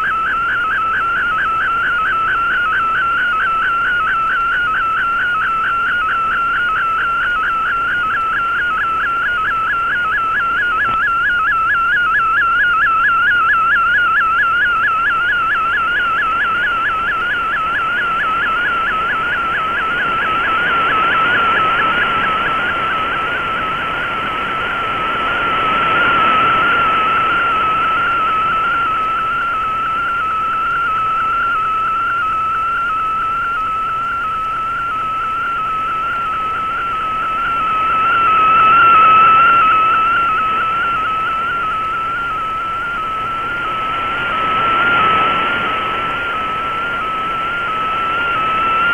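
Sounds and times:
whistling radio data tone: 0.0s - 48.9s
radio hiss: 34.0s - 48.9s.

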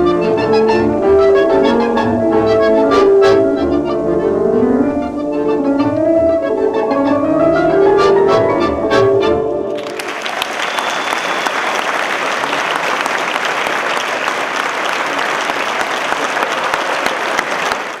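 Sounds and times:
tango music: 0.0s - 10.0s
audience applause: 9.8s - 18.0s.

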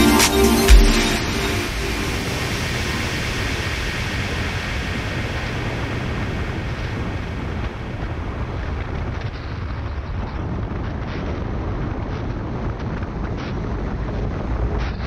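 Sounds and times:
wind buffeting microphone: 1.8s - 15.0s.

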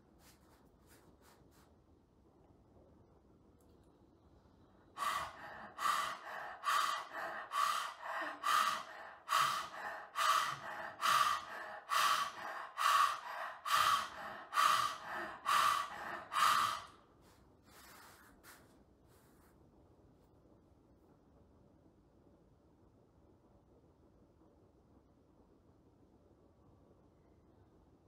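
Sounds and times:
soft breaths: 4.3s - 19.7s
person panting through mouth: 5.0s - 17.0s.

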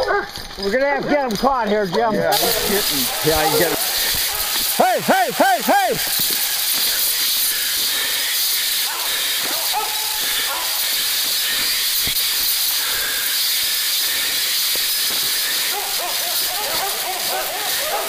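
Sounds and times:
running through brush rustling: 2.3s - 7.7s
distant hounds barking: 8.9s - 10.9s, 15.7s - 18.0s.

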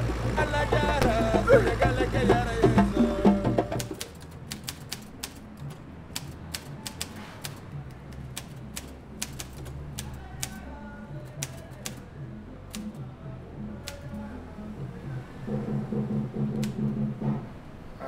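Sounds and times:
soft background music: 0.0s - 18.0s
typewriter keys clacking: 3.8s - 7.6s, 8.3s - 10.6s, 11.3s - 12.0s.

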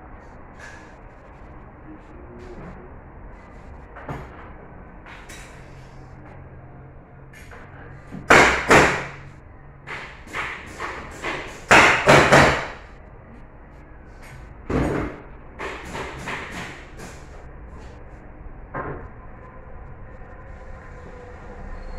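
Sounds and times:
knocks and thuds on wood: 9.9s - 12.8s, 14.7s - 17.3s.

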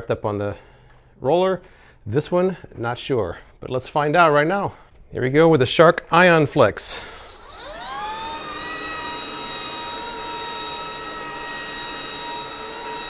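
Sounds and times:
vacuum cleaner motor whine: 7.0s - 13.0s.

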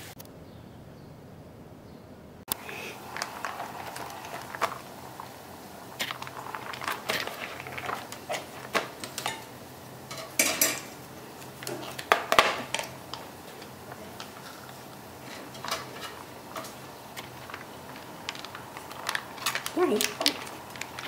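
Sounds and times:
dishes and utensils clinking: 6.0s - 21.0s.

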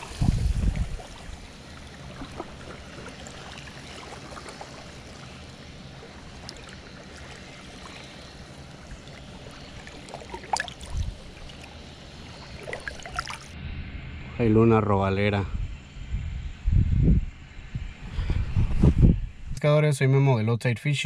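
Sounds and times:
short water splashes: 0.0s - 13.6s
water washing at the shore: 0.0s - 13.6s.

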